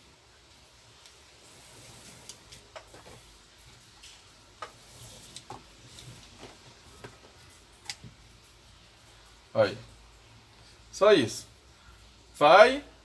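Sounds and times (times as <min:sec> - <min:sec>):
cord rustling and sliding: 0:00.9 - 0:08.2.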